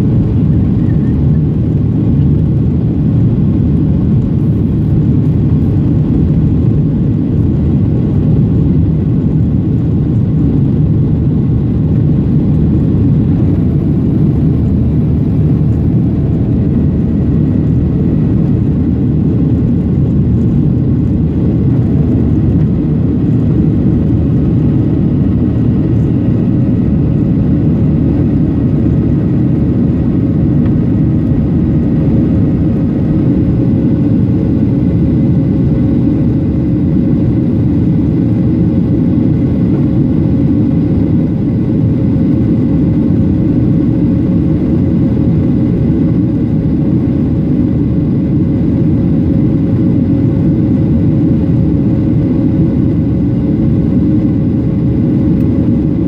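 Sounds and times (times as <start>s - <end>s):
faint steady whine: 0.0s - 56.0s
jet engine rumble in cabin: 0.0s - 56.0s.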